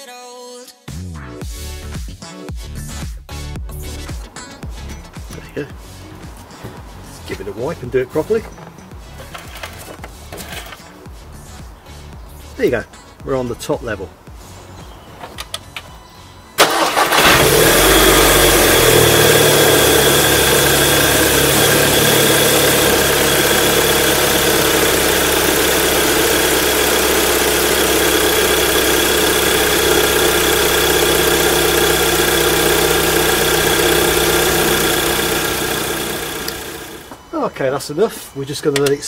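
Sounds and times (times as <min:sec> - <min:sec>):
car engine starting and idling: 0:15.4 - 0:37.3.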